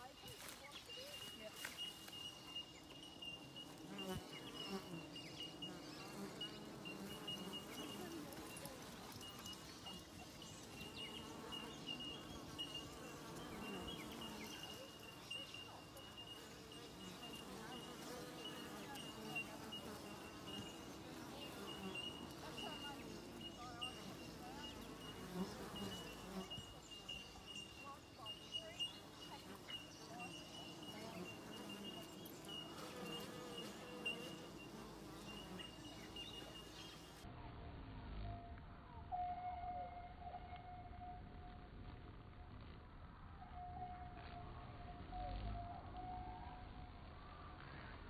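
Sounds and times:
bees buzzing past: 0.0s - 37.2s
bees humming: 0.0s - 37.2s
thin steady high tone: 7.2s - 25.2s.

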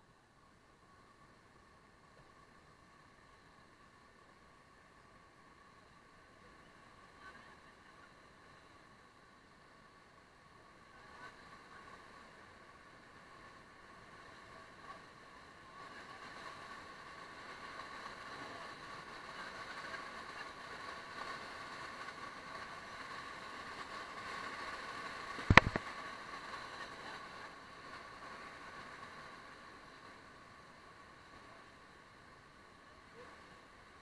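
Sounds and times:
rushing whitewater rapids: 10.6s - 34.0s
sharp knock: 25.4s - 25.8s.

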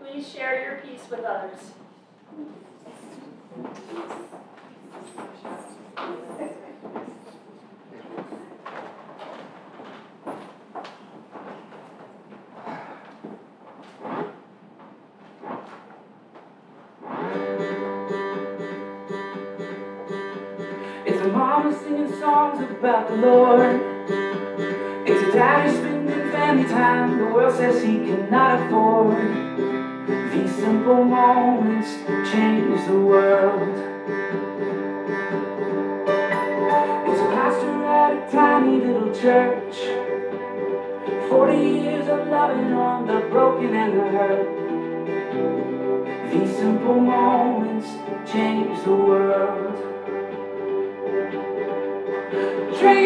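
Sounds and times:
guitar music: 17.0s - 53.0s.

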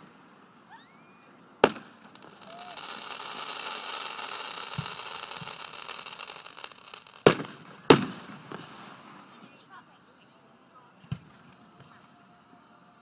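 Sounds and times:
fireworks crackling hiss: 0.0s - 9.9s
loud firework shell bursts: 1.6s - 9.0s.

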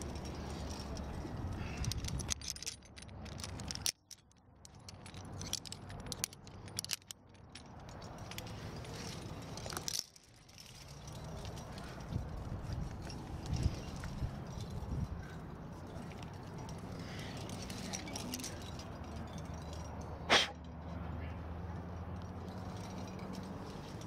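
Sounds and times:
rustling handling noise: 0.0s - 20.2s
carabiners clinking: 0.0s - 24.0s.

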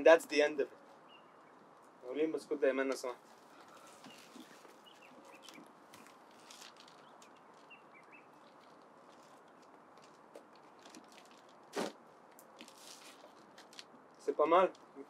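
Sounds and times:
bird chirps: 1.0s - 1.7s, 3.8s - 8.8s.

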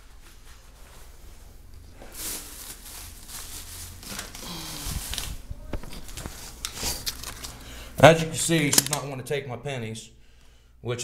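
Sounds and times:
camera handling rustle: 5.1s - 7.6s.

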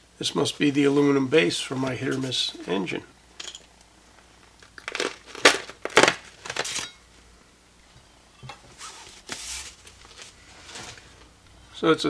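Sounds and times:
packaging crinkling: 4.4s - 6.9s
packing tape ripping: 4.6s - 6.9s.

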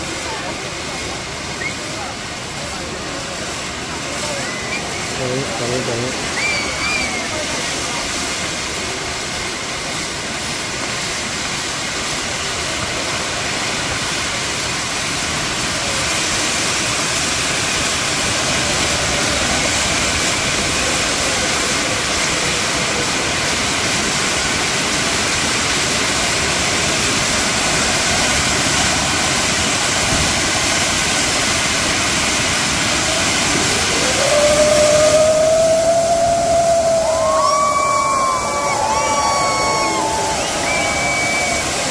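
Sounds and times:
fireworks spark fountains hissing: 0.0s - 41.9s
rising whistle: 4.2s - 5.6s, 6.3s - 7.4s, 33.6s - 41.9s.

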